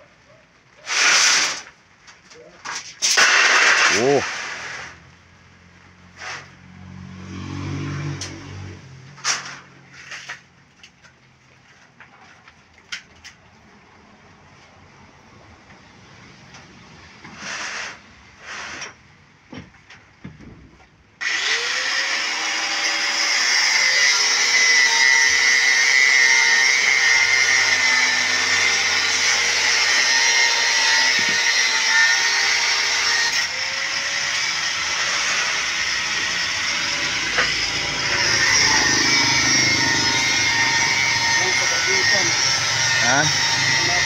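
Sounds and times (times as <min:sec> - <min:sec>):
angle grinder cutting steel: 0:03.0 - 0:05.0, 0:21.2 - 0:44.0.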